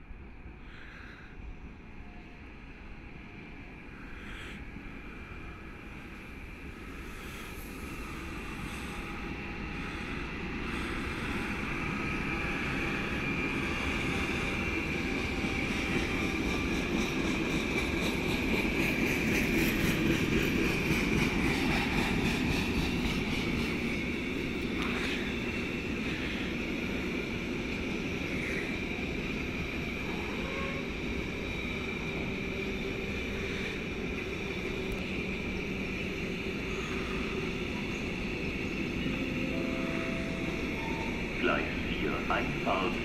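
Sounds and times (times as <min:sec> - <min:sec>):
train wheels rumbling: 0:03.7 - 0:43.0
high whine: 0:38.8 - 0:43.0.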